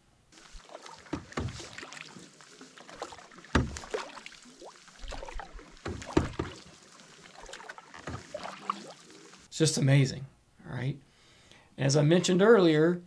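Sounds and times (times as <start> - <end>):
paddle splashing in water: 0.3 - 9.5
sharp knocks on canoe: 1.0 - 2.0, 3.5 - 4.1, 5.1 - 6.7, 8.0 - 8.6.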